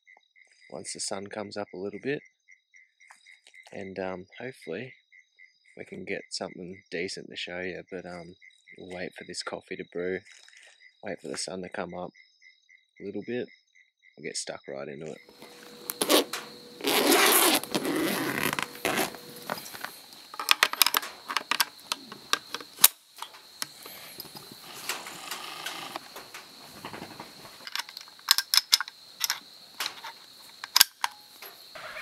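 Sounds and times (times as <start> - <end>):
backpack rustling: 15.3 - 28.4
cartridges clinking in box: 18.6 - 25.5, 27.2 - 31.6
rifle clicks and knocks: 18.7 - 31.6.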